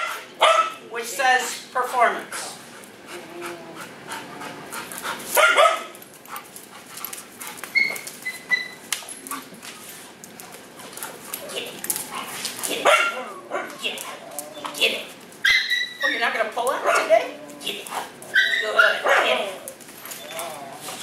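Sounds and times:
dog barking: 0.0s - 0.8s, 5.4s - 5.9s, 12.7s - 13.8s, 18.4s - 19.4s
dog panting: 2.4s - 5.4s
dog whining: 7.7s - 8.9s, 13.1s - 16.4s, 17.2s - 21.0s.

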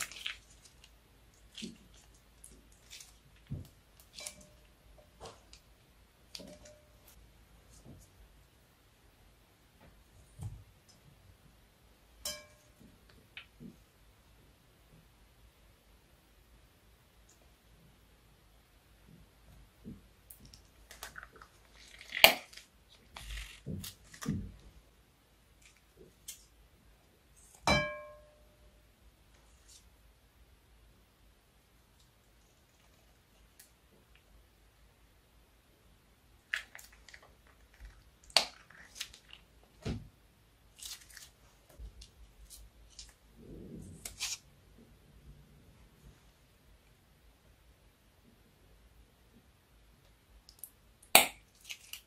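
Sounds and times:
soft wet squelches: 0.0s - 8.2s, 36.3s - 45.4s.

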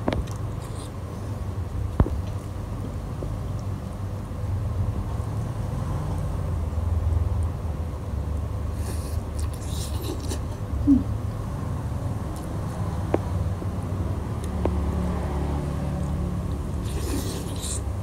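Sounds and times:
slurping soup: 16.7s - 18.0s.

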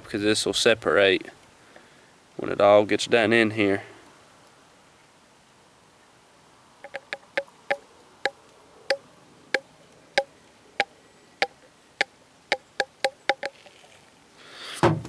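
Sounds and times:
sharp pops: 12.0s - 13.7s.

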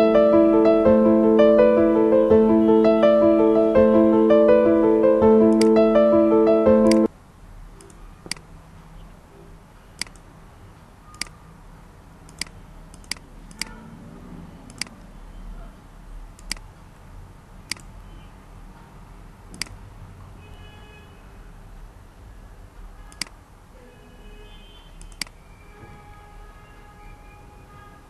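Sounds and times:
piano music: 0.0s - 7.1s
computer mouse clicks: 7.8s - 8.5s, 10.0s - 10.3s, 11.1s - 11.4s, 12.3s - 13.8s, 14.6s - 15.1s, 16.4s - 16.7s, 17.6s - 18.0s, 19.5s - 19.8s, 23.1s - 23.4s, 25.0s - 25.4s.

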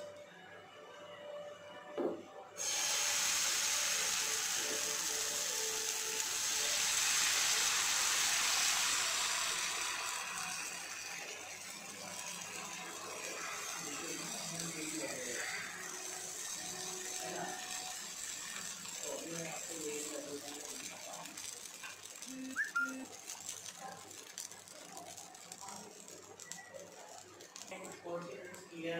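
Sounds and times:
batter sizzling on hot pan: 2.6s - 28.9s.

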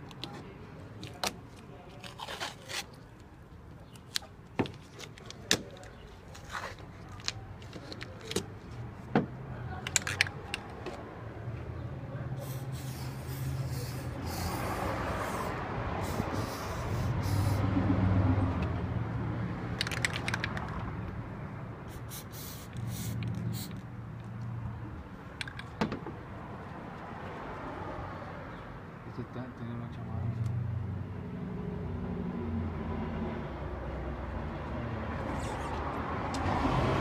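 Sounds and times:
aerosol can spraying: 12.4s - 17.7s, 21.9s - 23.8s.

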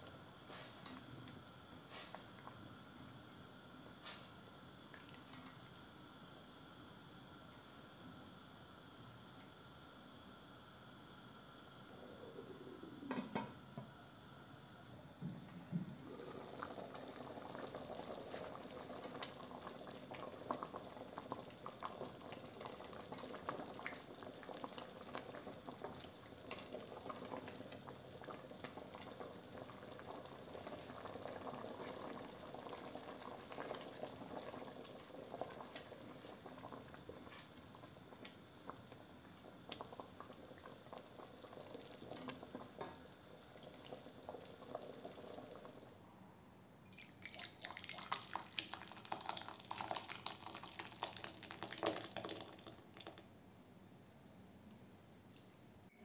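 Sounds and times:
soup bubbling and popping: 3.5s - 7.5s, 16.0s - 45.9s, 46.9s - 53.3s.

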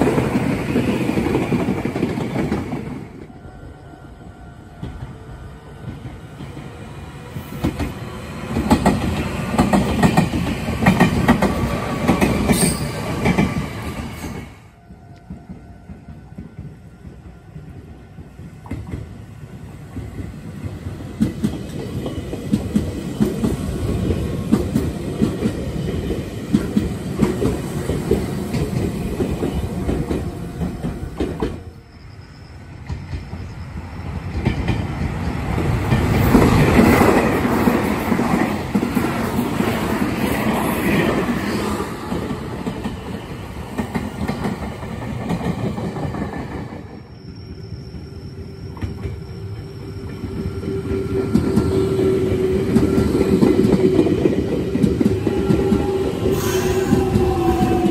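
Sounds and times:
electric trains passing: 0.0s - 57.9s.

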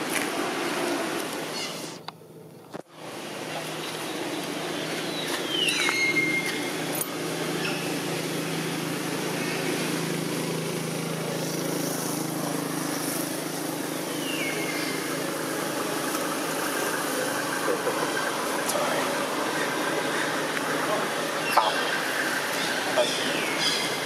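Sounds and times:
outdoor background noise: 0.0s - 24.0s
engine idling: 6.4s - 24.0s.

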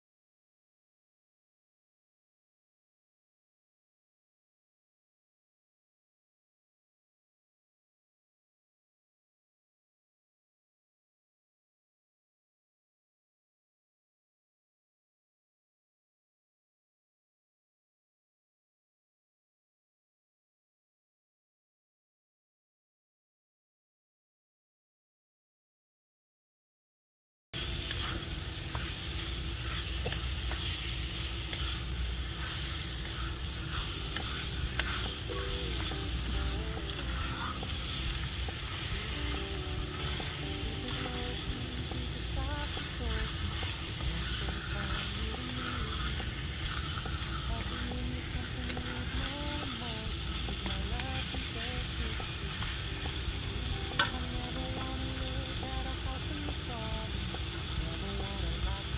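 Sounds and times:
meat sizzling in a pan: 27.6s - 58.9s
spatula scraping and tapping pan: 27.8s - 41.6s, 42.8s - 53.2s.

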